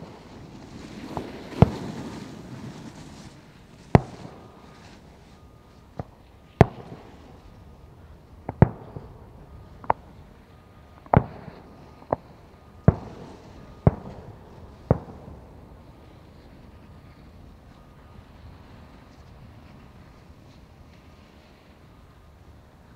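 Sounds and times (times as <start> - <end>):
firework shells bursting: 0.0 - 10.3, 11.0 - 17.4.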